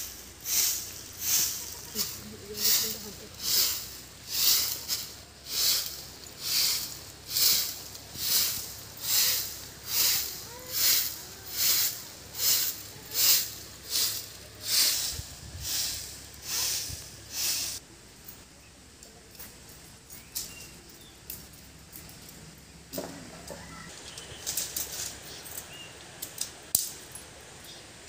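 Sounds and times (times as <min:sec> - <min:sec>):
broom sweeping dry earth: 0:00.0 - 0:17.9.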